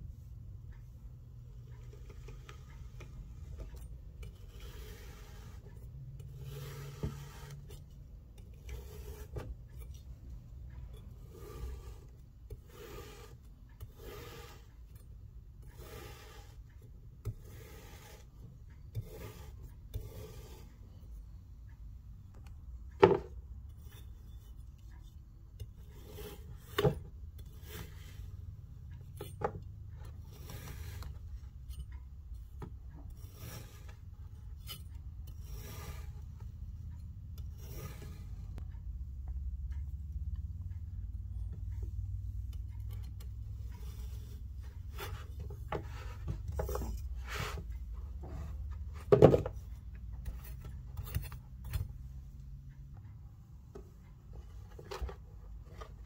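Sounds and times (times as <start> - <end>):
knife slicing kinetic sand: 4.3 - 5.7, 6.3 - 7.8, 8.6 - 9.5, 11.2 - 14.7, 15.8 - 16.6, 17.2 - 18.3, 19.0 - 20.7, 26.0 - 28.2, 30.3 - 31.0, 33.1 - 33.9, 34.6 - 36.2, 37.5 - 38.5.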